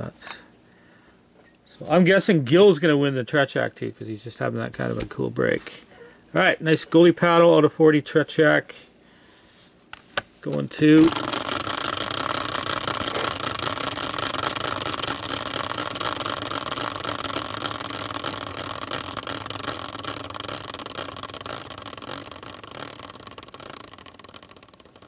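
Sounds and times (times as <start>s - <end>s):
spinning wheel whirring: 10.7s - 25.0s.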